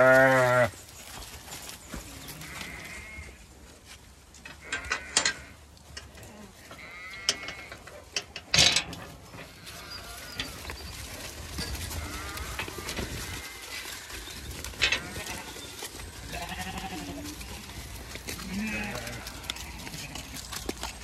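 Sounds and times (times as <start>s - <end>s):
sheep bleating: 0.0s - 0.7s, 2.2s - 3.4s, 6.7s - 7.7s, 11.9s - 13.7s, 14.8s - 15.6s, 16.2s - 20.5s.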